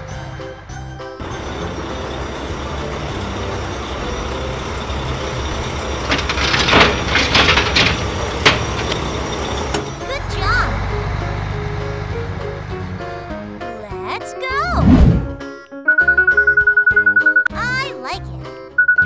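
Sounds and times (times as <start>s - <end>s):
truck engine running: 0.0s - 14.0s
pieces crashing and clattering: 5.8s - 9.6s.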